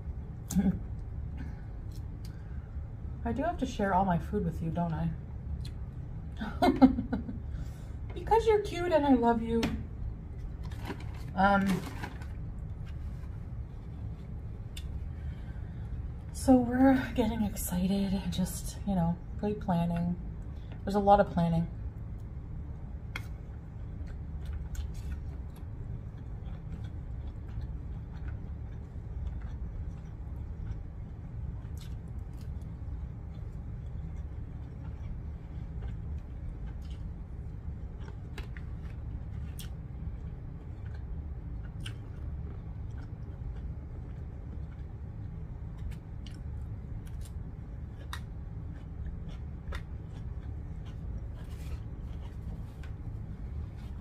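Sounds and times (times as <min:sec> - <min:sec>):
steady low hum: 0:00.0 - 0:54.0
person chewing: 0:23.1 - 0:54.0.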